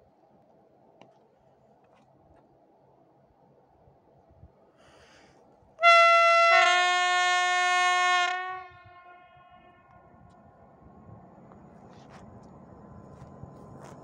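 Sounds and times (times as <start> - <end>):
train air horn chord: 5.8 - 10.0.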